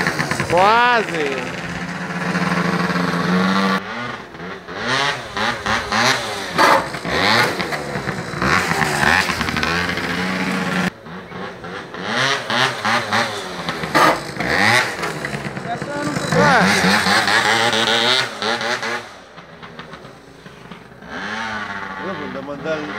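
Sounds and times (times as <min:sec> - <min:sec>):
scooter engines revving: 0:00.0 - 0:22.9.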